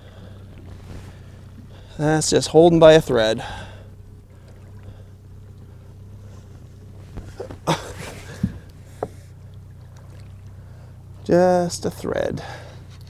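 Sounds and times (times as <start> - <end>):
boat motor idling: 0.0 - 13.0
fish splashing: 3.5 - 11.2.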